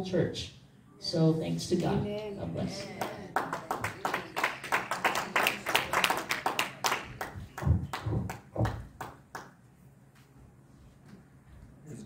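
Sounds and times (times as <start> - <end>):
congregation clapping: 2.7 - 9.6.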